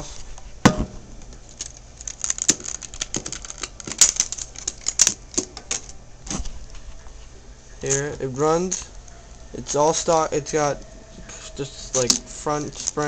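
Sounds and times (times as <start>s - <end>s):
plastic clicks and rattles: 1.5s - 6.0s.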